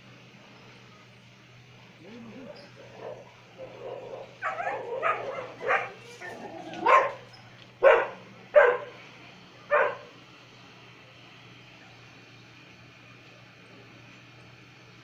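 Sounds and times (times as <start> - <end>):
dog barking: 3.0 - 6.1, 6.8 - 9.0, 9.7 - 10.1.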